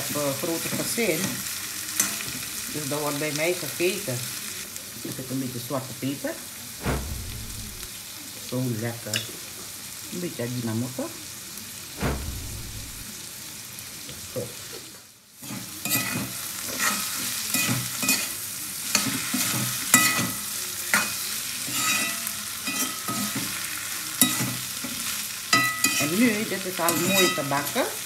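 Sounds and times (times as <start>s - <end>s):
food sizzling: 0.0s - 28.0s
metal spoon scraping a wok: 15.4s - 23.6s, 24.2s - 27.8s.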